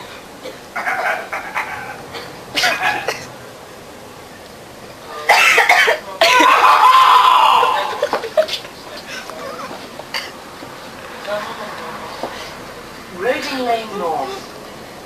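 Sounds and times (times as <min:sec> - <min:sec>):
person coughing: 0:02.1 - 0:03.3, 0:05.3 - 0:06.5.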